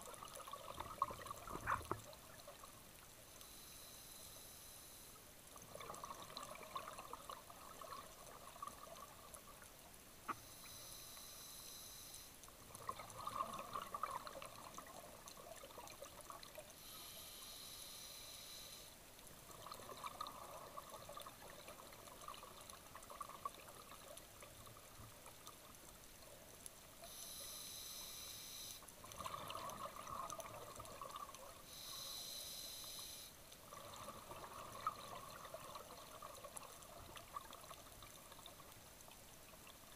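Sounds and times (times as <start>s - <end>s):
exhaled air bubbling: 5.7s - 9.4s, 12.7s - 16.7s, 29.0s - 31.6s, 33.6s - 38.6s
regulator hissing inhalation: 31.7s - 33.3s.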